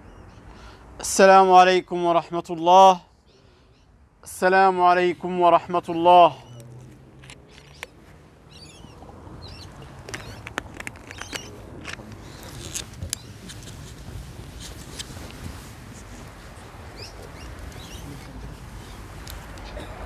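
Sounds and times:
high squeaky chirps: 0:07.5 - 0:11.6
rustling: 0:09.6 - 0:19.8
low murmur of voices: 0:10.9 - 0:20.0.

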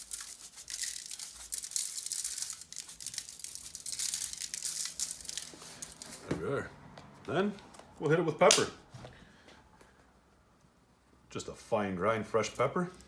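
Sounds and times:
salt ticking on meat and foil: 0:00.0 - 0:06.0
salt grains rattling in shaker: 0:00.0 - 0:06.2.

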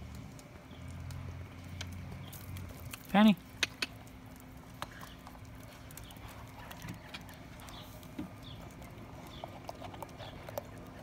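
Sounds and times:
dog claws tapping on concrete: 0:01.8 - 0:04.1.

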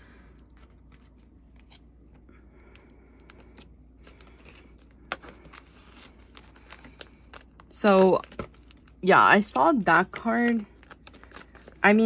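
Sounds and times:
plastic sleeves crinkling: 0:02.8 - 0:12.0.

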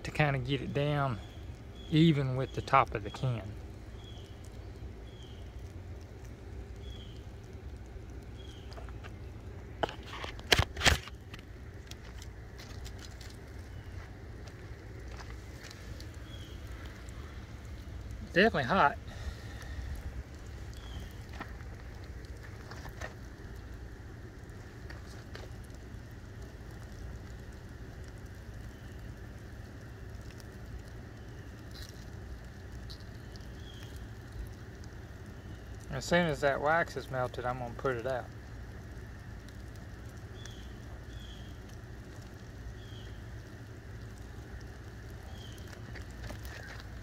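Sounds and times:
flames crackling: 0:00.0 - 0:47.0
sharp pops from fire: 0:00.7 - 0:47.0
low rumble: 0:03.4 - 0:35.9.

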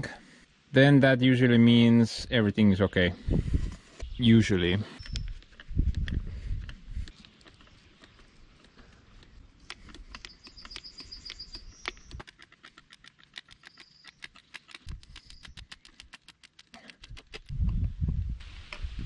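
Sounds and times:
grease gun clicking: 0:05.0 - 0:17.5.

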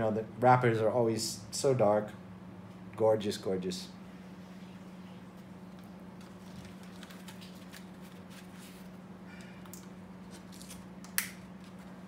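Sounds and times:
steady low hum: 0:00.0 - 0:12.0
paper rustling: 0:06.2 - 0:09.0.

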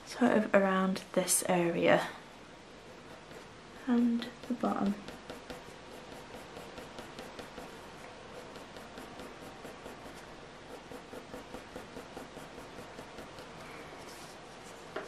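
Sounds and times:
pencil scratching on paper: 0:03.0 - 0:14.3.

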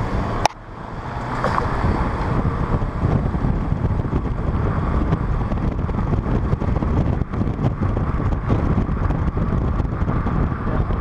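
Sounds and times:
road and wind noise in car: 0:00.0 - 0:11.0.

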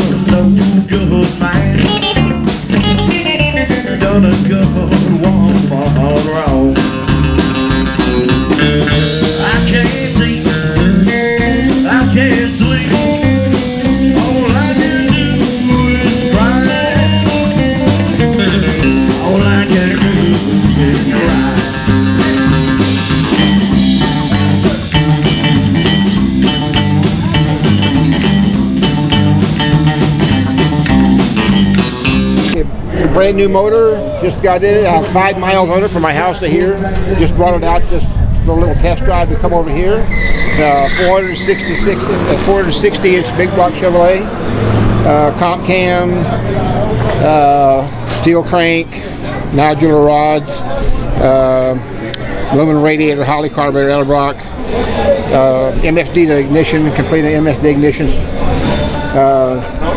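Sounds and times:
drum kit: 0:00.0 - 0:32.7, 0:37.2 - 0:48.3
electric guitar: 0:00.0 - 0:36.2, 0:36.8 - 0:49.6
upright bass: 0:00.0 - 0:59.9.

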